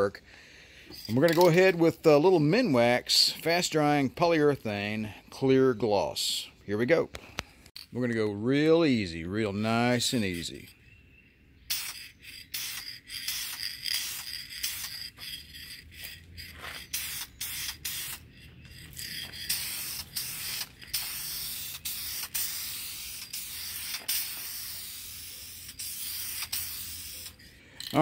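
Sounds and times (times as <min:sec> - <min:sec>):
aerosol spray can hissing: 0:11.7 - 0:27.5.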